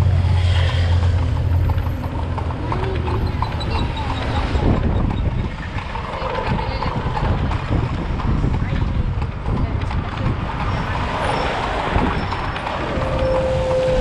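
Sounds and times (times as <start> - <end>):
bus driving past: 0.0 - 6.0, 10.2 - 14.0
moped engines running: 0.0 - 14.0.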